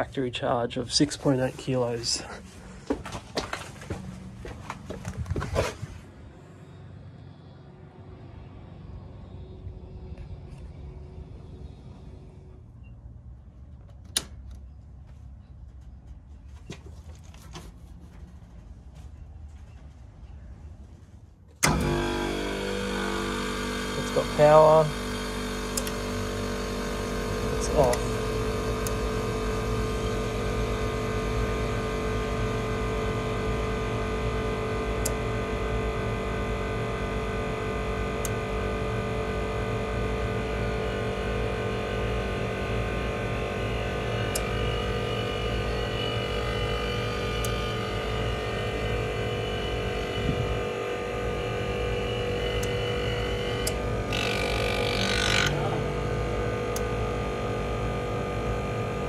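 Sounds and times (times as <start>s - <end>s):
air conditioner unit humming: 13.3s - 59.0s.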